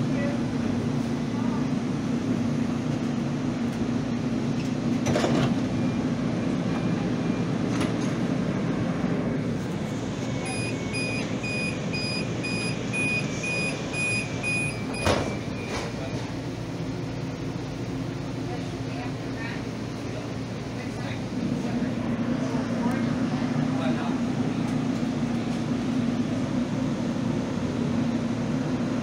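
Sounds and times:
train car hum: 0:00.0 - 0:29.0
sliding doors shutting: 0:04.5 - 0:05.6, 0:09.7 - 0:16.4
rapid high warning beeps: 0:10.3 - 0:16.2.

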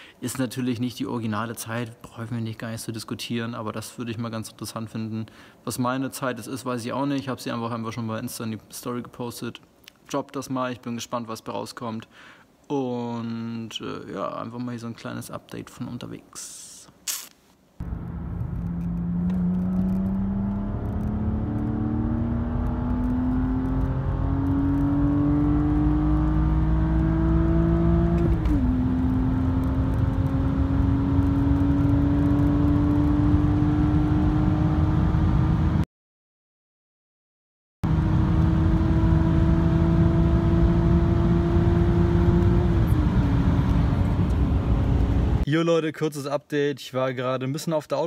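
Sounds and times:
car engine accelerating: 0:17.8 - 0:35.8, 0:37.9 - 0:45.4.

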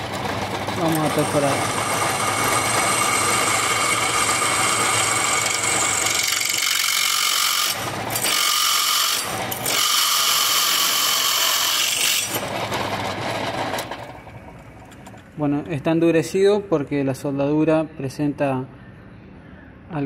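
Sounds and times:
drill press boring into metal: 0:00.0 - 0:14.1.

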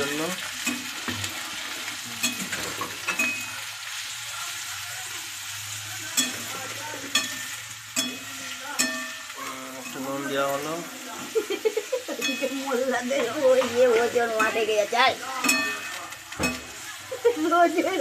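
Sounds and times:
vegetables sizzling in hot oil: 0:00.0 - 0:18.0
spatula clinking against pan: 0:02.2 - 0:03.6, 0:06.1 - 0:10.1, 0:12.0 - 0:14.7, 0:15.4 - 0:16.9.

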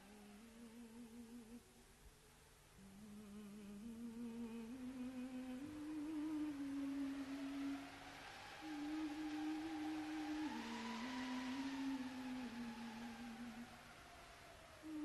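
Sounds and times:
person humming a slow melody: 0:00.0 - 0:01.8, 0:02.8 - 0:15.0.

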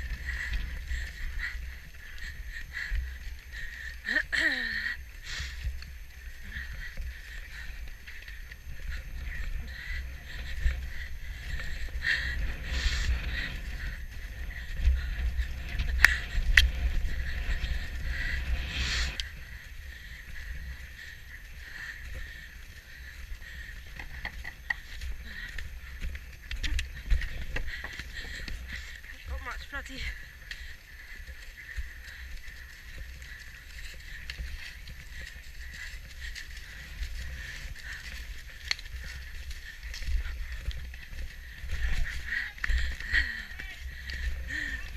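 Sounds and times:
muffled hoofbeats: 0:00.0 - 0:44.9
wind rumbling on microphone: 0:00.0 - 0:44.9
horse tack knocks and clicks: 0:23.9 - 0:28.6.

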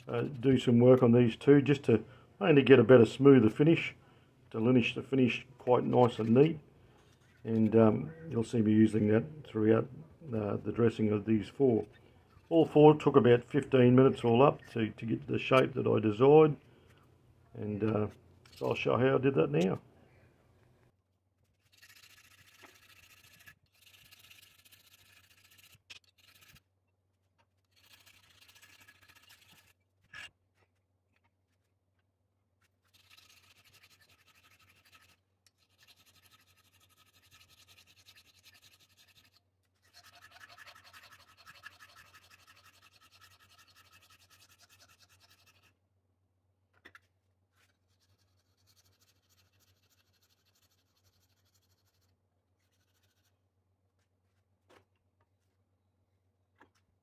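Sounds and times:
file rasping on steel: 0:32.9 - 0:45.8.

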